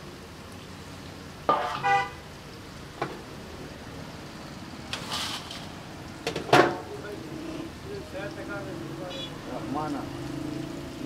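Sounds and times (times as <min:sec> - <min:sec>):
hot oil sizzling: 0:00.0 - 0:11.0
vehicle horn honking: 0:01.5 - 0:02.2.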